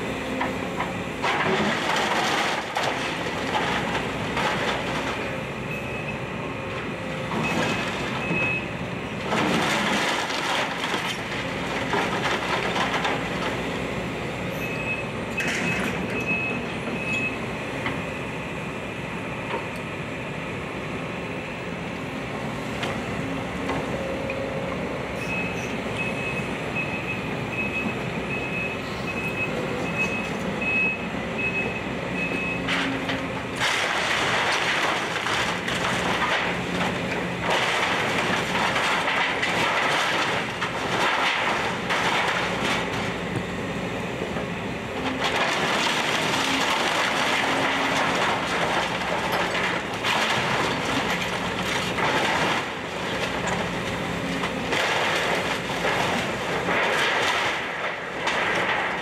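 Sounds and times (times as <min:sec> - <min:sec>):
excavator engine running: 0:00.0 - 0:59.0
timber splintering and debris falling: 0:33.6 - 0:43.0, 0:54.6 - 0:59.0.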